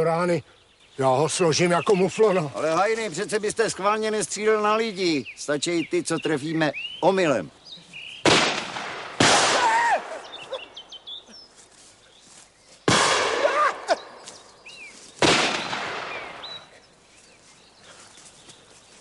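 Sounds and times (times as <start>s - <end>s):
gunshots with echo: 8.2s - 9.7s, 12.9s - 13.9s, 15.2s - 16.4s.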